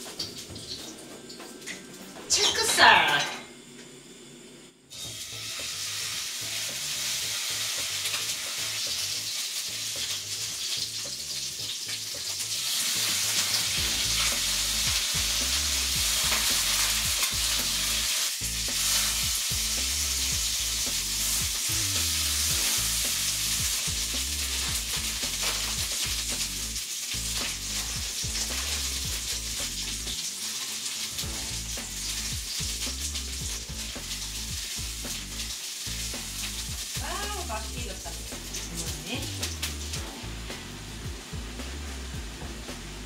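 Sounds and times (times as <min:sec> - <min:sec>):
steak sizzling in frying pan: 0:00.0 - 0:03.0, 0:04.9 - 0:43.0.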